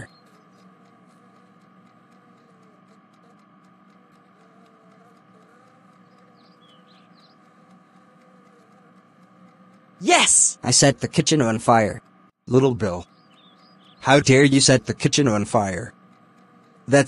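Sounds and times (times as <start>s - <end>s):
background hiss and hum: 0.0s - 17.0s
faint high chirps: 5.4s - 7.5s.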